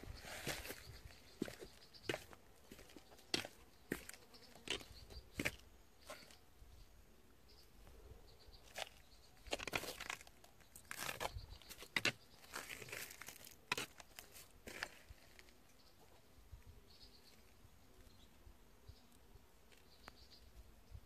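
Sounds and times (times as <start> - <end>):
rustling on grass: 0.0 - 4.2
faint footsteps on gritty paving: 0.0 - 6.4, 8.6 - 15.6.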